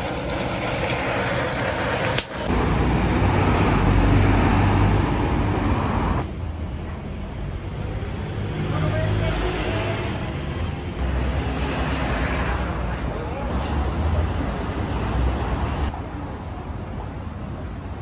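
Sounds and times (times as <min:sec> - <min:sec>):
food sizzling on griddle: 0:00.0 - 0:02.6
street background noise: 0:00.0 - 0:18.0.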